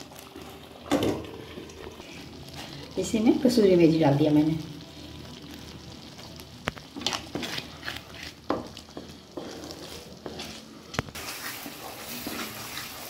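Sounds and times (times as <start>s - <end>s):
low sizzle: 0.0s - 13.0s
spatula scraping a pan: 7.0s - 13.0s.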